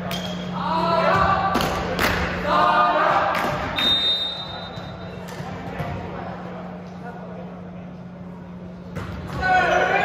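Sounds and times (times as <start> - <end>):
voices shouting in echoing hall: 0.0 - 4.7, 9.3 - 10.0.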